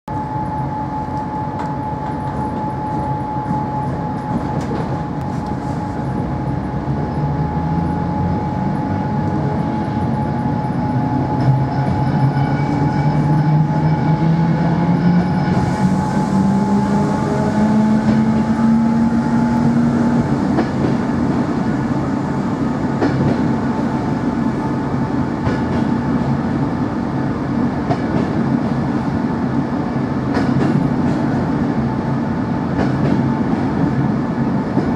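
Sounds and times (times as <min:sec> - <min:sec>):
constant high whine: 0:00.1 - 0:12.5
train wheels rumbling on rails: 0:00.1 - 0:34.9.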